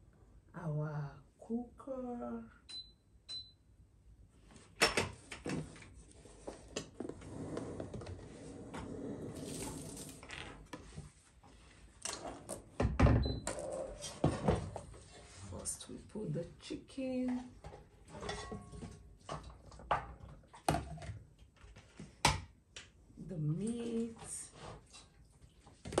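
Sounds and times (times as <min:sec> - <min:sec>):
cooktop touch control beeps: 0:02.7 - 0:03.7
rustling: 0:09.4 - 0:10.7.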